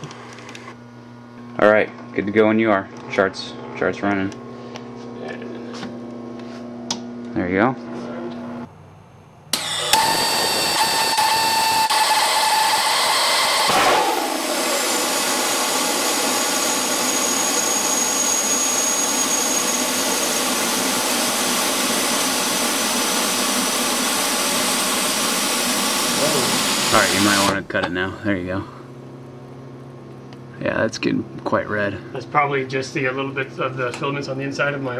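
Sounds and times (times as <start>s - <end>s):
rocket motor hissing roar: 9.5s - 27.6s.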